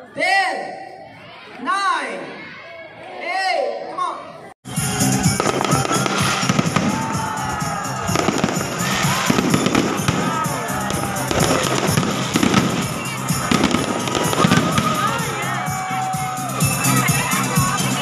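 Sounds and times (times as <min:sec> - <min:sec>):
fireworks bursting and crackling: 0:05.1 - 0:18.0.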